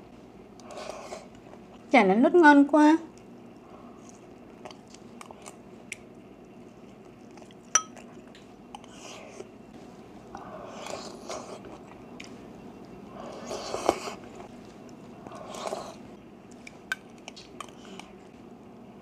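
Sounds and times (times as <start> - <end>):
soft chewing: 3.1 - 9.6, 10.2 - 18.6.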